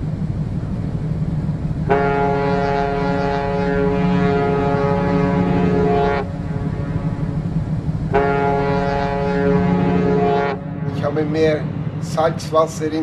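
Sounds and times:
low rumble: 0:00.0 - 0:13.0
ship's horn blasts: 0:01.8 - 0:12.0.

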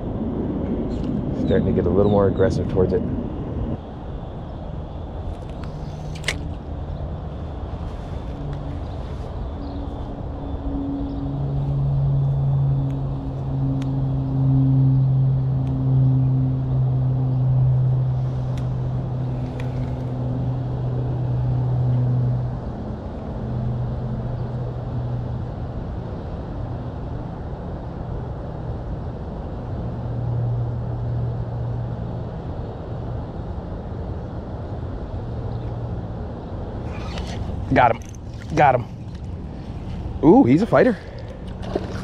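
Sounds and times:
low motor hum: 0:00.0 - 0:42.0
dull rumble: 0:29.6 - 0:42.0.

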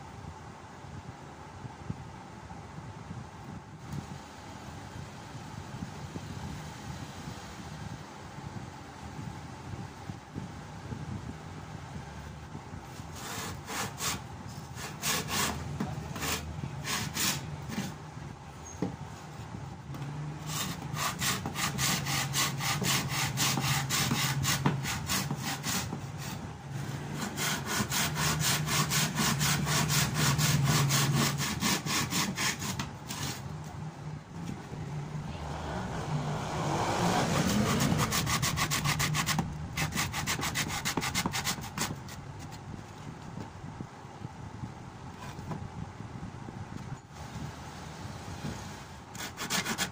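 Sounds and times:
hand saw sawing wood: 0:13.1 - 0:18.0, 0:20.4 - 0:33.4, 0:37.0 - 0:42.6, 0:49.1 - 0:49.9
rushing noise: 0:34.6 - 0:40.6.

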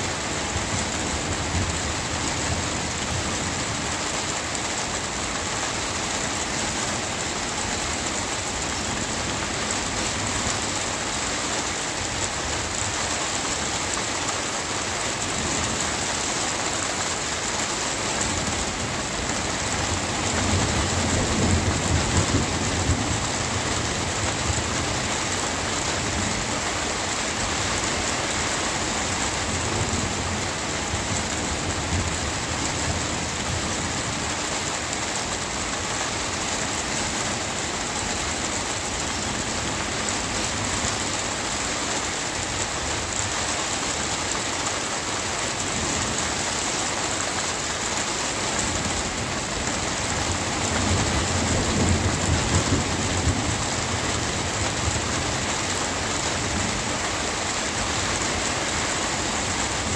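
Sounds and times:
steady rain hissing: 0:00.0 - 0:59.9
low rumble of thunder: 0:18.3 - 0:25.3, 0:48.9 - 0:55.5.

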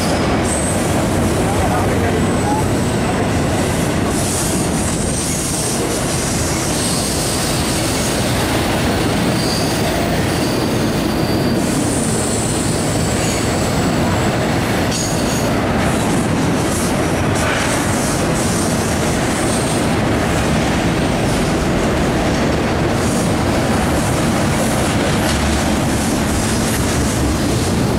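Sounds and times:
rumble of steel wheels on rail: 0:00.0 - 0:27.9
high wheel squeals: 0:08.9 - 0:13.5.

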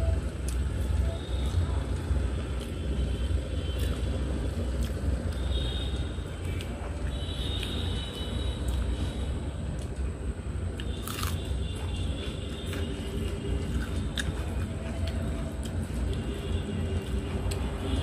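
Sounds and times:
crisp bite: 0:10.8 - 0:11.4
chewing: 0:10.8 - 0:17.6.

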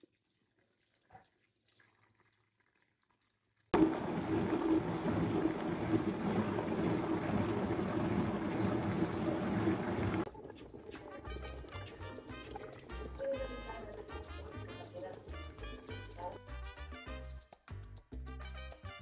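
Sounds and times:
liquid churning in jar: 0:03.8 - 0:16.2.

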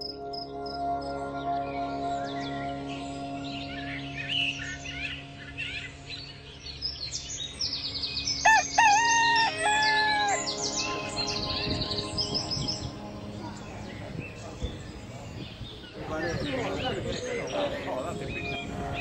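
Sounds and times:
small birds chirping: 0:00.0 - 0:19.0
rooster crowing: 0:08.4 - 0:10.6.

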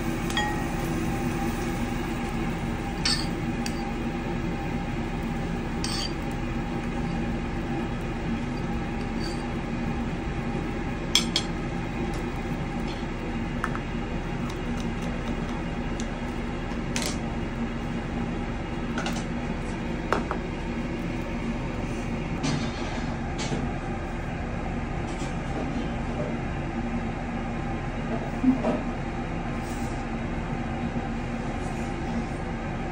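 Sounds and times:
steady background hum: 0:00.0 - 0:32.9
dishes and cutlery clinking: 0:03.0 - 0:03.9, 0:05.8 - 0:06.3.

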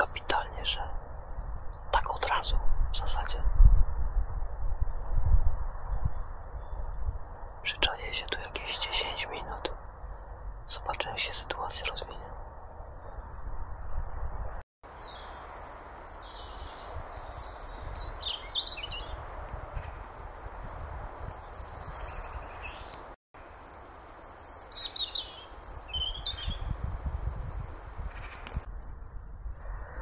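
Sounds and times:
faint woodland hiss and rumble: 0:14.9 - 0:28.6
robin singing: 0:15.0 - 0:19.2, 0:21.2 - 0:29.5.

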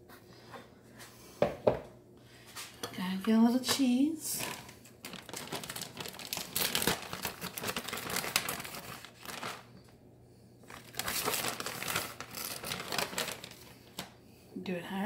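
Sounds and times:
plastic bag crinkling: 0:04.4 - 0:10.0, 0:10.6 - 0:14.1.

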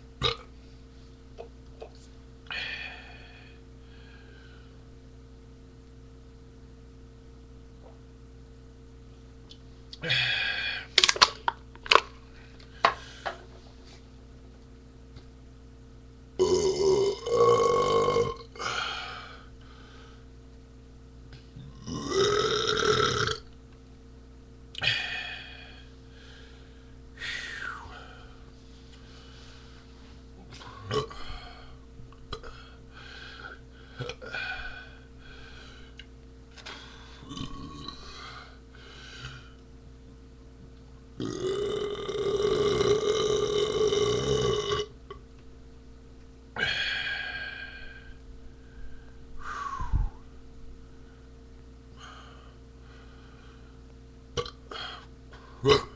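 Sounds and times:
man belching: 0:00.2 - 0:00.5, 0:16.4 - 0:18.7, 0:21.7 - 0:23.5, 0:30.7 - 0:31.3, 0:37.2 - 0:38.0, 0:41.2 - 0:45.2, 0:54.4 - 0:55.0, 0:55.6 - 0:55.9
man burping: 0:00.2 - 0:00.5, 0:16.4 - 0:18.8, 0:21.6 - 0:23.5, 0:30.6 - 0:31.7, 0:34.0 - 0:34.8, 0:37.2 - 0:38.2, 0:41.2 - 0:45.2, 0:54.3 - 0:55.9.

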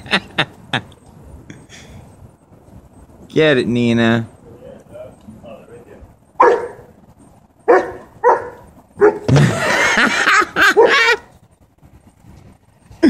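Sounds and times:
dog barking: 0:06.4 - 0:06.9, 0:07.6 - 0:09.3, 0:10.7 - 0:11.2.

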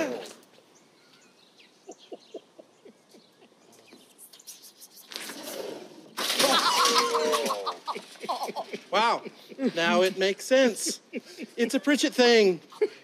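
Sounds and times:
people laughing loudly: 0:06.5 - 0:12.1
man chuckling softly: 0:10.8 - 0:11.8.

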